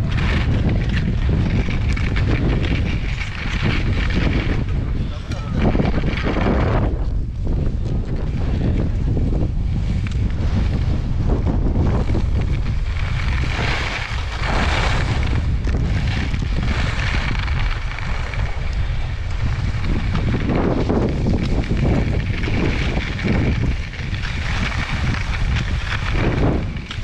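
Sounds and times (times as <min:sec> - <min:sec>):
wind rumbling on microphone: 0:00.0 - 0:27.0
skis hissing and scraping on snow: 0:09.7 - 0:27.0.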